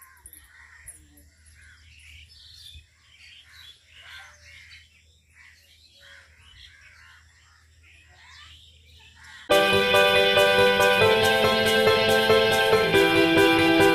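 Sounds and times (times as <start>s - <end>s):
birds chirping faintly: 0.0s - 10.2s.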